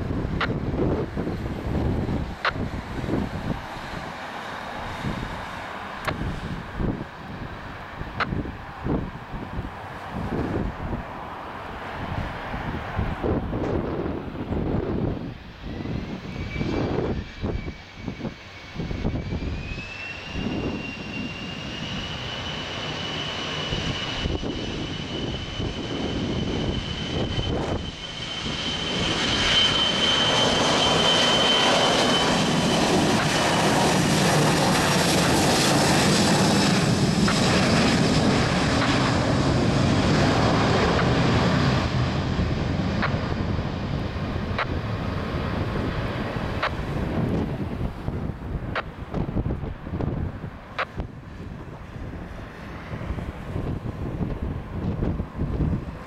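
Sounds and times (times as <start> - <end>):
jet engines spooling up: 0.0 - 56.0
rising whistle: 15.3 - 39.4.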